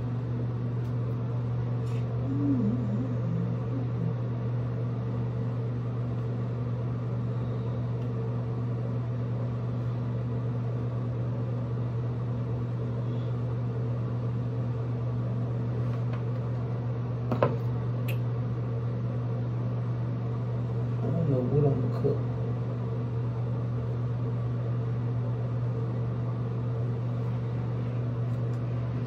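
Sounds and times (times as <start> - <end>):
low electric hum: 0.0 - 29.0.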